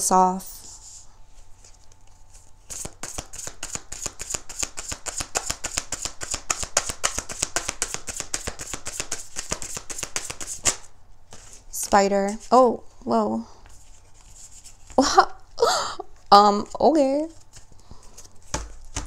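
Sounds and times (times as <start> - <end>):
cards being shuffled: 1.6 - 11.7, 17.3 - 19.0.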